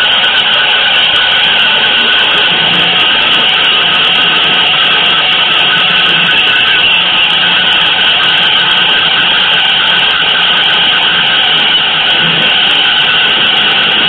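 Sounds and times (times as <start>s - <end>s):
loud hiss-like noise: 0.0s - 14.0s.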